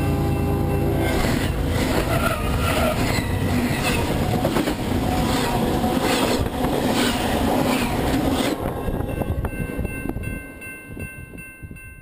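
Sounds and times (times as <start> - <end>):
train rumbling over track: 0.0 - 11.9
clatter of wheels over rails: 1.0 - 8.8.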